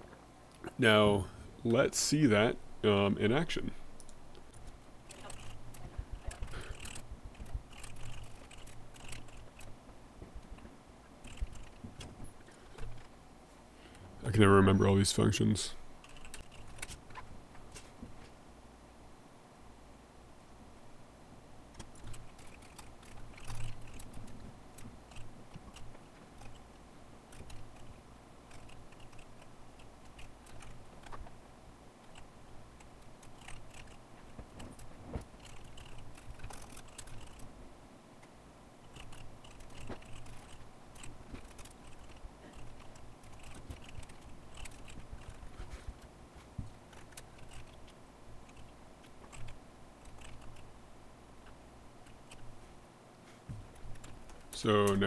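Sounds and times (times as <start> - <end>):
low steady hum: 0.0 - 55.0
typing on computer keyboard: 33.0 - 34.0, 38.9 - 45.4, 49.3 - 50.6.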